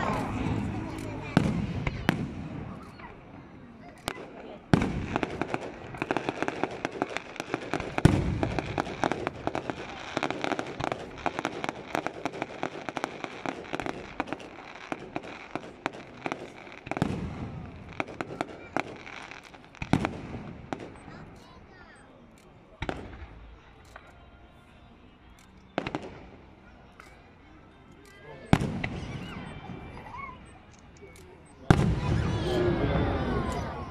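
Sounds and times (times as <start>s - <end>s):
firework shell booms: 0.0s - 2.9s, 4.1s - 19.0s, 31.7s - 33.1s
fireworks crackling: 0.0s - 33.9s.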